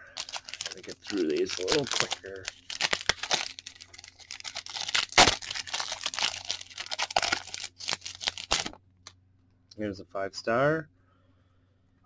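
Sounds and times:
foil pack ripping: 0.0s - 8.8s
plastic and foil crinkling: 0.0s - 8.8s.

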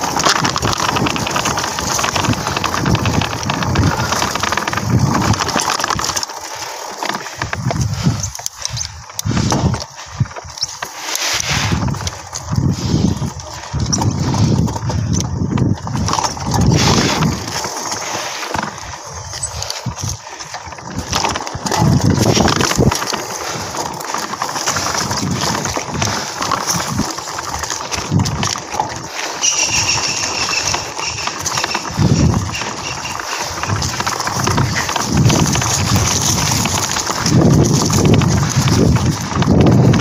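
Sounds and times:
mountain bike rattling: 0.0s - 40.0s
high squeaks: 29.4s - 33.9s.

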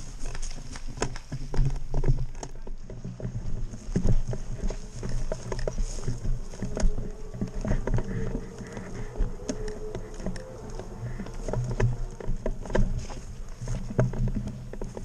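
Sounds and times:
rumble against microphone: 0.0s - 15.0s.

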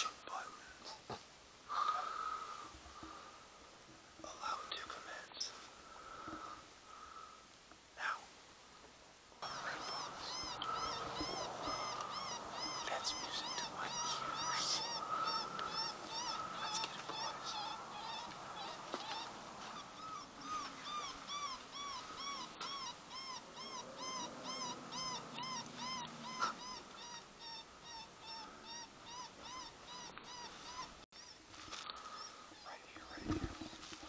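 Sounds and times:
geese honking: 9.4s - 21.2s.

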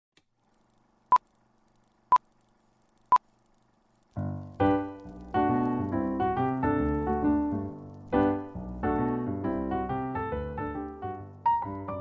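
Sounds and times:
piano music: 4.2s - 12.0s.

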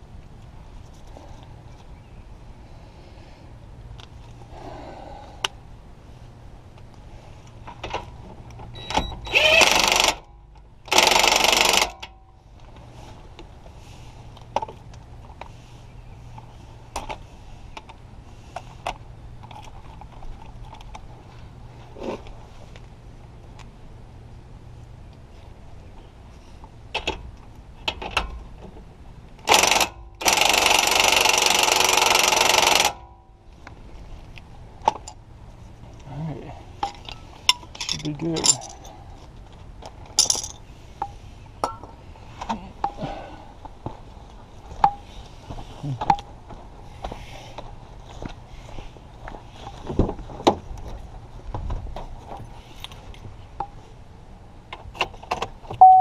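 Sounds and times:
metal tools clinking: 36.8s - 39.0s, 40.1s - 40.6s.

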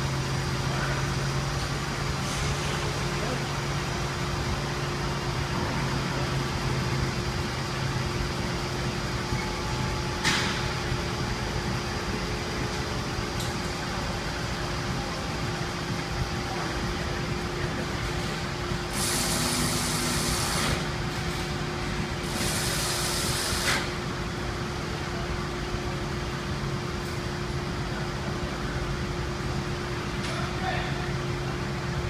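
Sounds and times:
car engine running: 0.0s - 30.1s
hissing spray bursts: 18.9s - 20.9s, 22.2s - 23.9s.

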